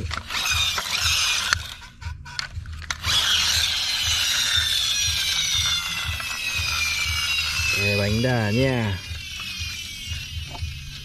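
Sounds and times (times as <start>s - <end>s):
toy flywheel whirring ratchety: 0.0s - 11.0s
flywheel whine falling in pitch: 4.0s - 11.0s.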